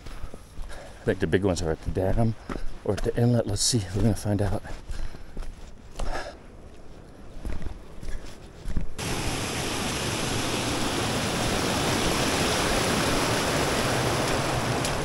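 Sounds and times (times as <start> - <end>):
fast-flowing water rushing: 9.0 - 15.0.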